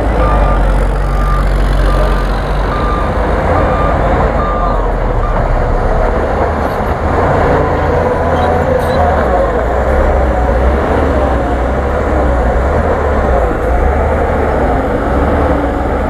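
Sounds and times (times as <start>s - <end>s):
diesel truck engine rumbling: 0.0s - 16.0s
reversing alarm beeping: 0.1s - 5.8s.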